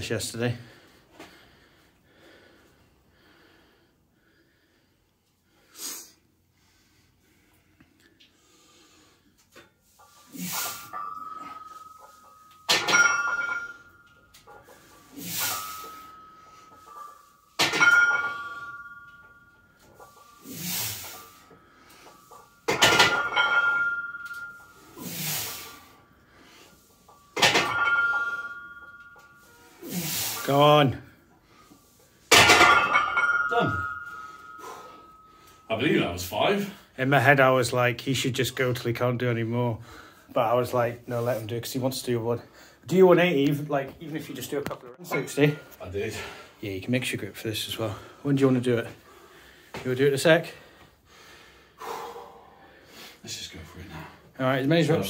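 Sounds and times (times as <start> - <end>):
man breathing: 0.6 - 12.6, 18.1 - 22.6, 31.2 - 32.3, 33.8 - 35.7, 39.8 - 40.3, 42.4 - 42.9, 49.0 - 49.8, 50.5 - 54.4
barbell clanging down: 10.7 - 25.6, 27.1 - 29.7, 32.3 - 35.3
forceful breath: 50.6 - 53.2.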